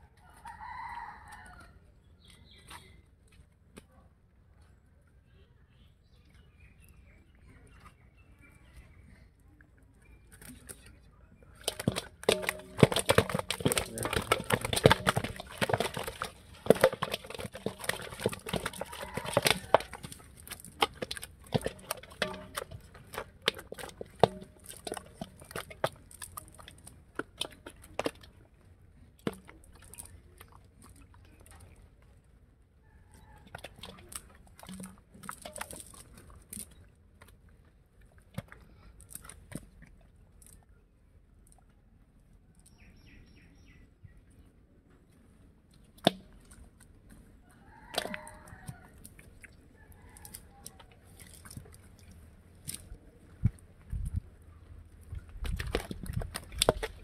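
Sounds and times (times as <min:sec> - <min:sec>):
fish flapping in a metal bowl: 0:11.5 - 0:28.6, 0:29.2 - 0:31.9, 0:33.1 - 0:36.9, 0:47.6 - 0:57.0.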